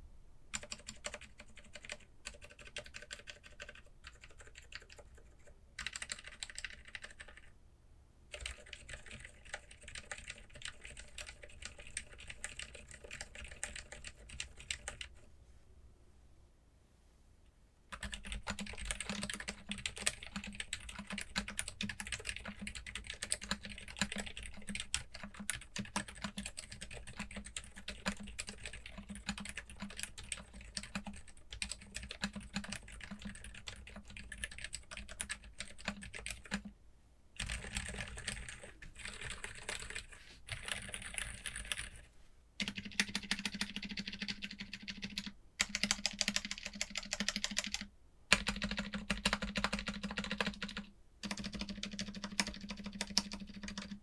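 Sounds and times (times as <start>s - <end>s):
fast typing on keyboard: 0.5s - 7.5s, 8.3s - 15.2s, 17.9s - 36.7s, 37.4s - 54.0s.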